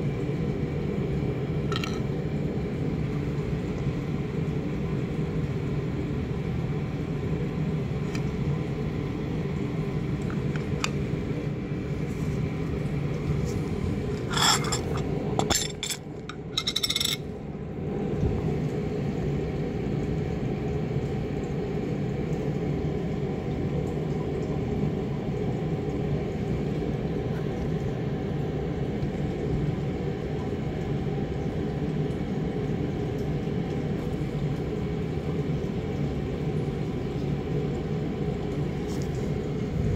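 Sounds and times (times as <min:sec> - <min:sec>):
low room rumble: 0:00.0 - 0:39.9
containers clinking and clattering: 0:01.7 - 0:02.1, 0:14.0 - 0:17.3.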